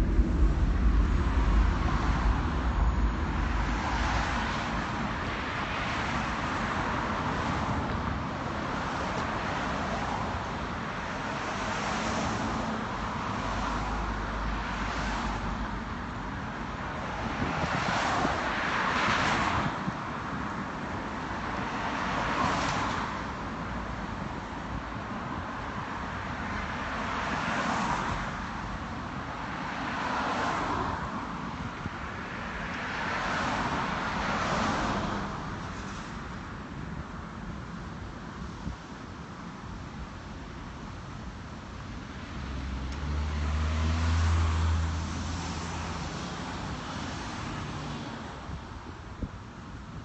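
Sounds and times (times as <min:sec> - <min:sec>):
low rumble: 0:00.0 - 0:06.4
cars passing: 0:00.0 - 0:38.8, 0:39.4 - 0:48.5.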